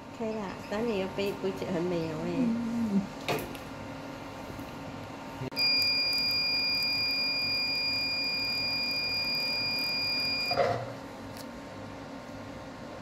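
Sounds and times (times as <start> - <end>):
steady high beep: 5.6 - 10.6.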